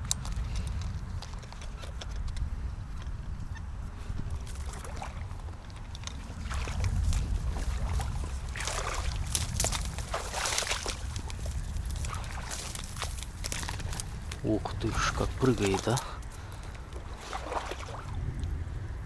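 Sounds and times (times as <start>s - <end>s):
wind rumble on microphone: 0.0s - 19.0s
water sloshing and splashing: 4.3s - 18.3s.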